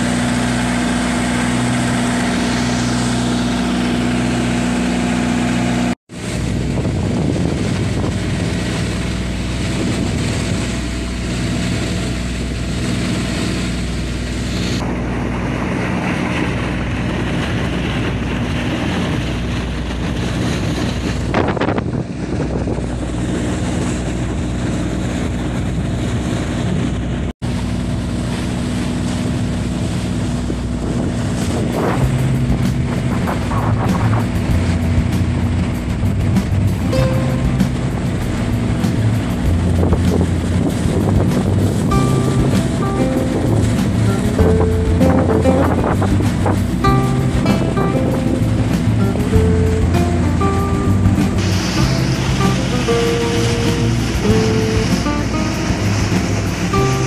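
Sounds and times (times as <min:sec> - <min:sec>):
boat diesel engine running: 0:00.0 - 0:57.0
water rushing: 0:00.0 - 0:57.0
wind on microphone: 0:06.1 - 0:57.0.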